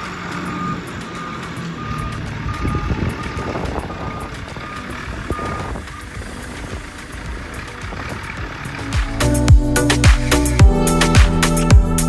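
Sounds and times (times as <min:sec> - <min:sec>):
diesel engine running: 0:00.0 - 0:12.0
back-up alarm beeping: 0:00.3 - 0:06.8.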